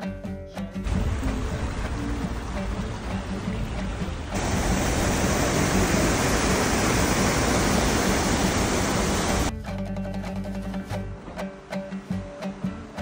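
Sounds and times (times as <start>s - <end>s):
stream rushing over rocks: 0.8s - 9.5s
light guitar music: 9.5s - 13.0s.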